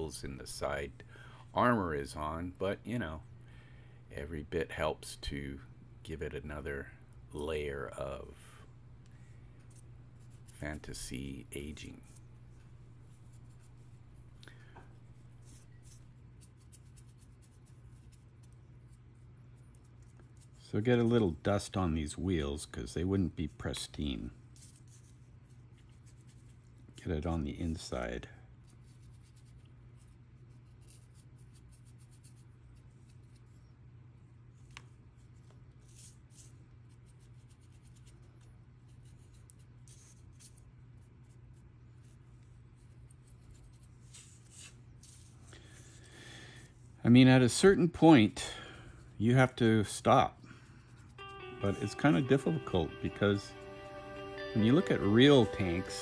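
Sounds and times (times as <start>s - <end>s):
brush dabbing scratchily: 0.0s - 0.9s, 4.2s - 20.7s, 24.0s - 26.9s, 28.6s - 33.6s, 35.2s - 46.0s, 49.0s - 53.4s
steady low hum: 0.0s - 24.6s, 36.5s - 55.0s
paintbrush scratchy dabbing: 9.2s - 19.0s, 35.8s - 45.9s.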